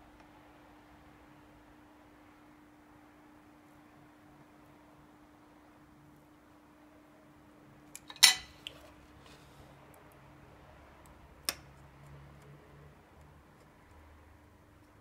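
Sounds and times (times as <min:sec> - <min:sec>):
metal tools clattering: 0:08.1 - 0:08.5.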